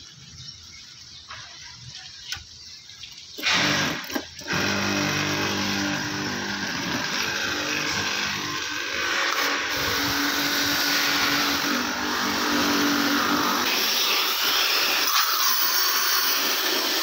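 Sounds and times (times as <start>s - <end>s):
water jet hissing: 1.3s - 17.0s
pressure washer motor humming: 3.4s - 17.0s.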